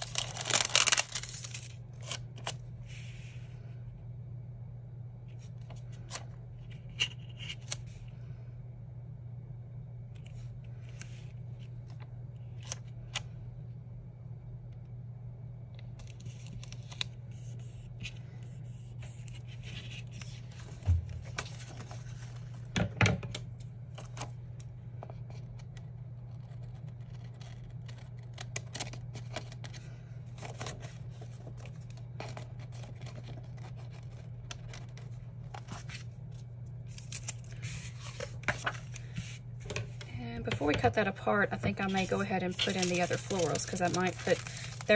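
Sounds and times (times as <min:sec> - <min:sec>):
paper rustling: 0:00.0 - 0:03.3, 0:36.9 - 0:40.0, 0:41.8 - 0:44.9
steady low hum: 0:00.0 - 0:44.9.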